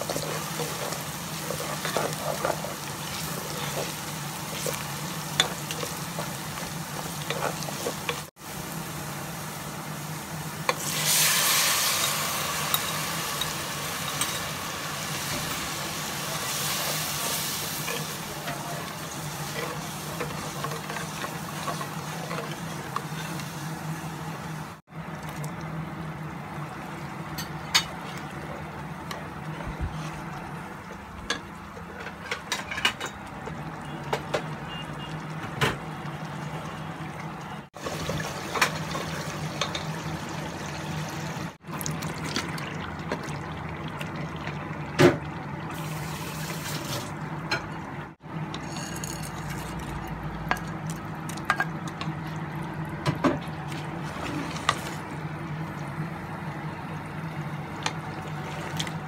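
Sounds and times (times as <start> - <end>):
spatula scraping the pan: 0.0 - 4.8
sauce sizzling and bubbling: 0.0 - 32.0, 33.2 - 59.0.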